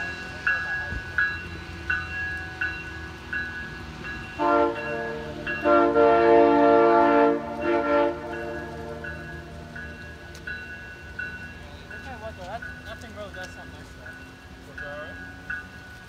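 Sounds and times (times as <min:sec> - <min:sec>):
bell ringing: 0:00.0 - 0:06.0, 0:07.6 - 0:16.0
locomotive air horn blasts: 0:04.4 - 0:09.3.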